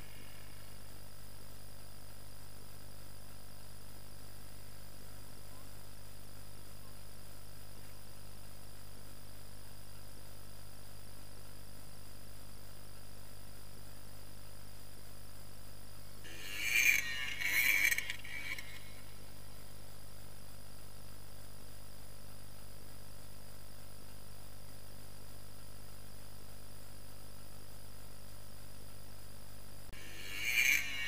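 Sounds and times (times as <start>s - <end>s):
steady low hum: 0.0s - 11.1s, 14.9s - 23.0s, 29.8s - 31.0s.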